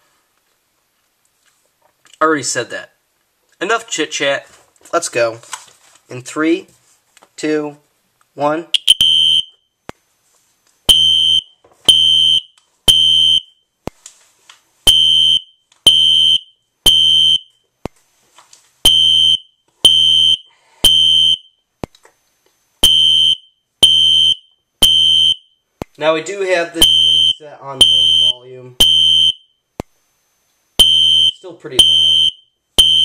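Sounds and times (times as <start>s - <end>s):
fire alarm horn blasts: 8.8s - 9.6s, 18.9s - 21.6s, 22.8s - 25.6s, 26.8s - 29.6s, 30.8s - 33.0s.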